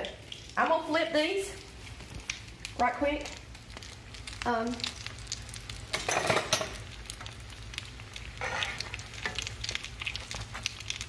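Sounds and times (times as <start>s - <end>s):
frying grease sizzling and popping: 0.0s - 11.0s
metal spatula scraping a skillet: 8.3s - 9.4s.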